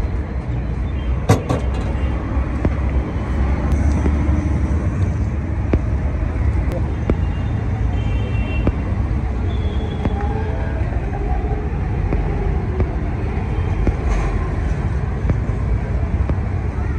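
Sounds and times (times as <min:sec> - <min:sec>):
traffic rumble: 0:00.0 - 0:16.9
faint voices: 0:08.7 - 0:16.9.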